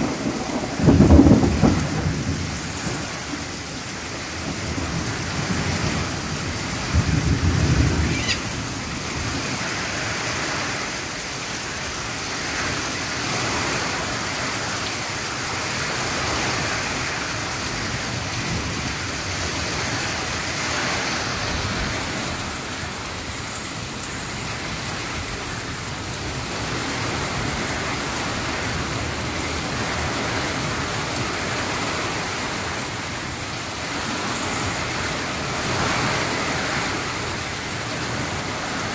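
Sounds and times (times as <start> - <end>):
thunder rumble: 0.0 - 10.3
heavy rain on foliage: 0.0 - 38.9.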